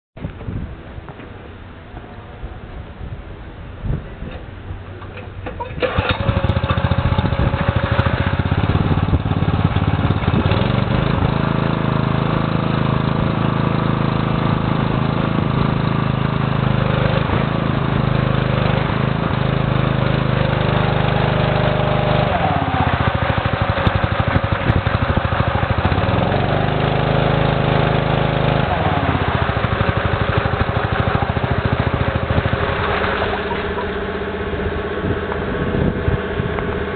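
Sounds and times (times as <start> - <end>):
small gasoline engine running: 5.5 - 36.9
water gushing from pump outlet: 5.6 - 35.5.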